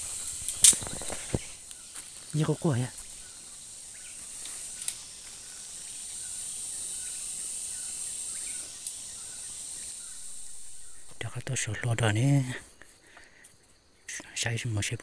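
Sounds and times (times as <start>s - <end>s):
insects droning: 0.0s - 15.0s
sharp cracks: 0.4s - 1.5s.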